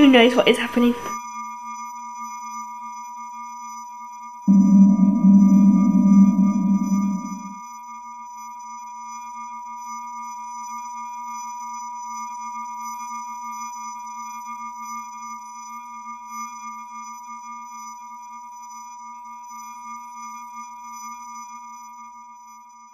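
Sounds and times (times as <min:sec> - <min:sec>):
low electronic hum: 0:04.5 - 0:07.6
thin high sustained tones: 0:04.5 - 0:07.6.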